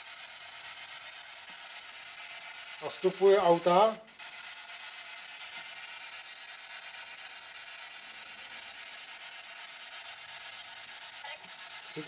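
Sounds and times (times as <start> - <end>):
radio static hiss: 2.6 - 6.3, 11.0 - 12.0.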